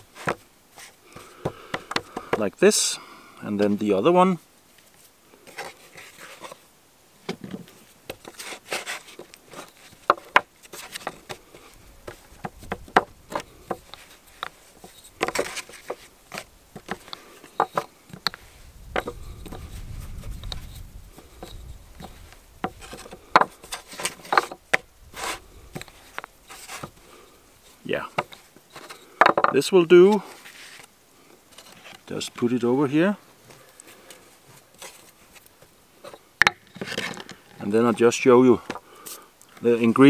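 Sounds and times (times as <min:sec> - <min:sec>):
wooden taps and knocks: 0:01.2 - 0:02.5, 0:09.2 - 0:11.4, 0:12.0 - 0:24.9, 0:28.1 - 0:29.6, 0:36.0 - 0:37.4.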